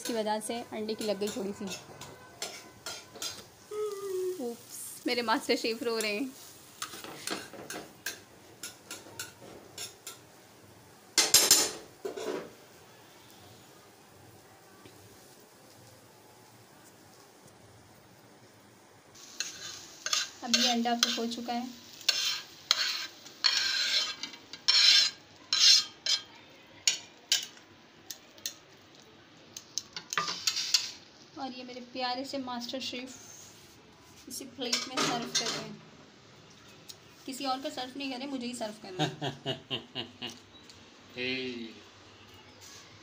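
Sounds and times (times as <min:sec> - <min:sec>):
metal utensil tapping on griddle: 0:00.0 - 0:00.2, 0:00.9 - 0:03.4, 0:06.8 - 0:10.2, 0:11.2 - 0:12.5, 0:19.4 - 0:21.4, 0:22.0 - 0:27.6, 0:34.6 - 0:35.7.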